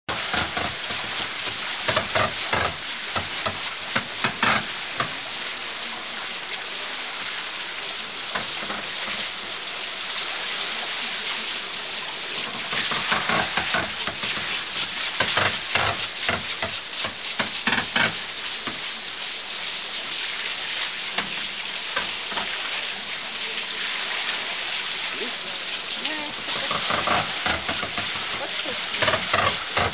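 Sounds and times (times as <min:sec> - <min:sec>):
wooden knocks: 0:00.1 - 0:05.2, 0:12.6 - 0:18.8, 0:26.1 - 0:29.9
water splashing on water wheel: 0:00.1 - 0:29.9.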